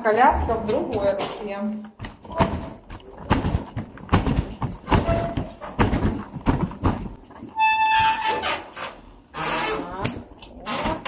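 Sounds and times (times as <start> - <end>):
footsteps: 0.1 - 8.4
baby stroller thumping: 2.0 - 7.2.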